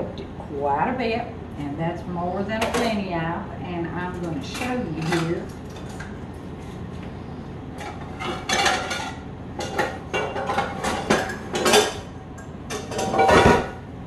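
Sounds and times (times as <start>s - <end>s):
dishes and cutlery clinking: 7.8s - 12.1s, 12.7s - 13.8s.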